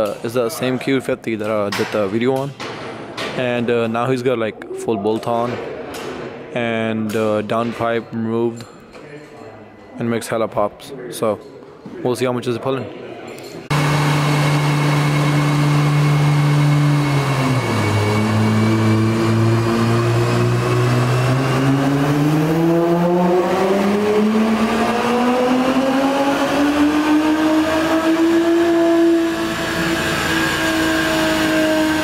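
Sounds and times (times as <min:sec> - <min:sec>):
car engine revving on a dyno: 0:13.7 - 0:32.0.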